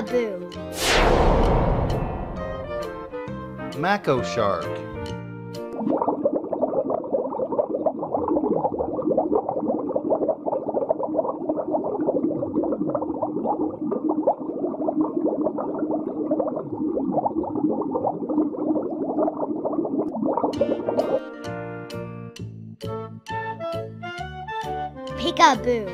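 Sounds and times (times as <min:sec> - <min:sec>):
low hum: 0:00.8 - 0:03.8
underwater bubbling: 0:05.6 - 0:21.1.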